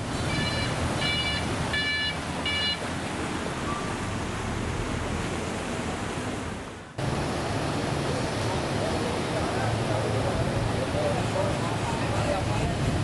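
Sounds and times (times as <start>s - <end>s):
flowing floodwater: 0.0s - 13.0s
wind: 0.0s - 13.0s
vehicle horn beeping: 0.2s - 2.8s.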